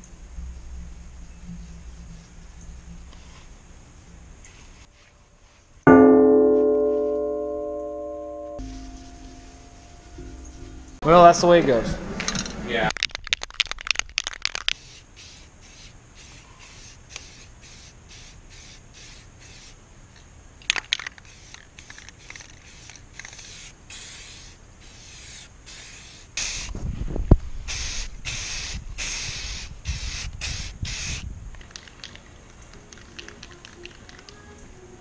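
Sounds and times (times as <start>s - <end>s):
aerosol can ball rattling: 12.3s - 15.4s, 20.6s - 24.2s, 30.0s - 34.4s
spray can hissing: 13.9s - 19.8s, 20.6s - 26.8s, 27.7s - 34.4s.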